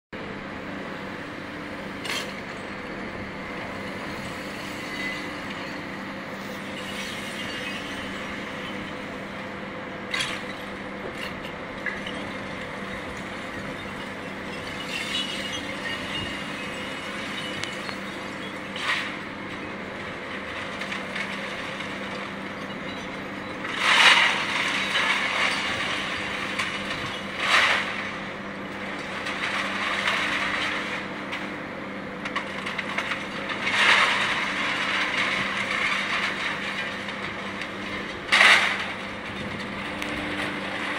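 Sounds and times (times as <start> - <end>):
machine engine hum: 0.2 - 40.9
scrap metal crashing: 10.1 - 31.6, 32.3 - 40.9.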